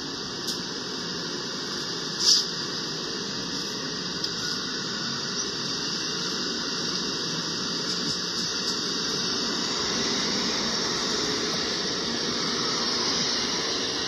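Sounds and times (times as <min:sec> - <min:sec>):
train rolling past: 0:03.4 - 0:14.0.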